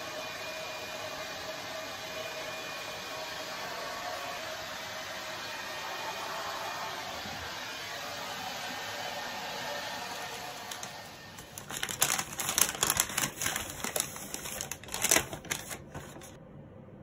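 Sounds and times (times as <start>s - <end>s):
hair dryer blowing: 0.0s - 14.1s
paper bag crinkling: 10.7s - 16.4s.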